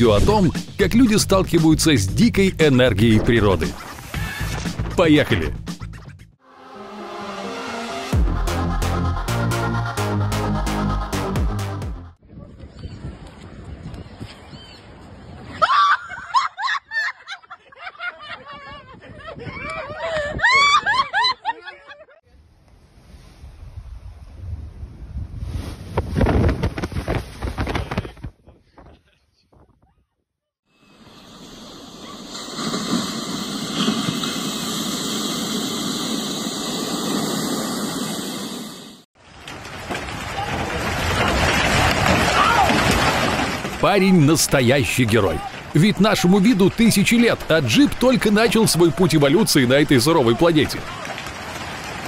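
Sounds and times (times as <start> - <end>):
ocean wave crashing: 6.5 - 11.2
high-pitched laughter and shrieking: 15.6 - 22.2
outdoor rushing noise: 30.8 - 52.0.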